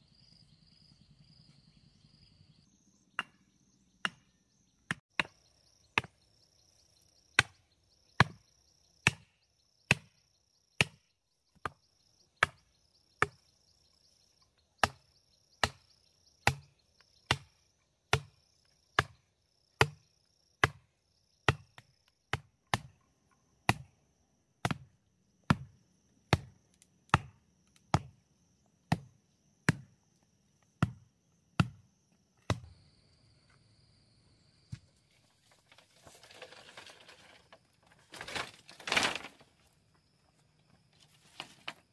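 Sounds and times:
insects buzzing: 0:27.5 - 0:41.9.

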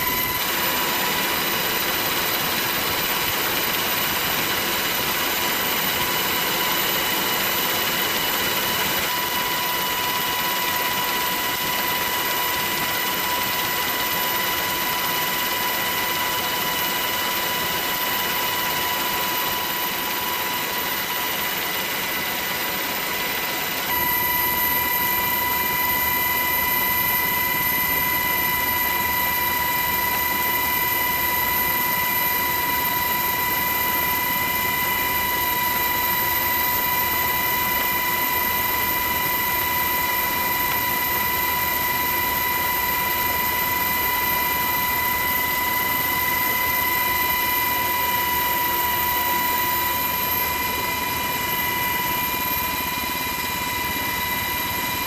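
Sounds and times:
aircraft engine drone and whine: 0:00.0 - 0:55.0.

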